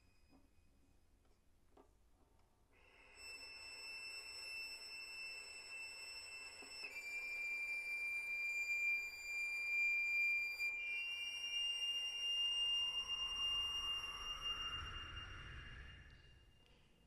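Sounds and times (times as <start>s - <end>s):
high sustained electronic tone: 3.1s - 16.6s
faint rising tone: 12.1s - 17.0s.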